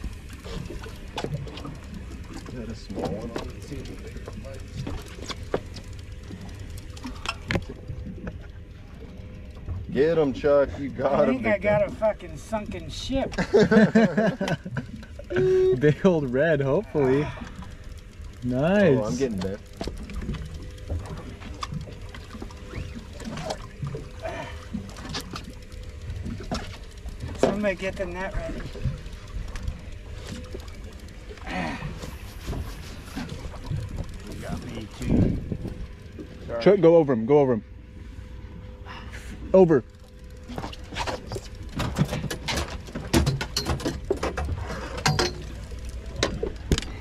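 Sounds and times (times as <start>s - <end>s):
steady low rumble: 0.0s - 47.0s
water lapping against boat hull: 0.0s - 47.0s
fishing reel clicking: 11.5s - 37.1s.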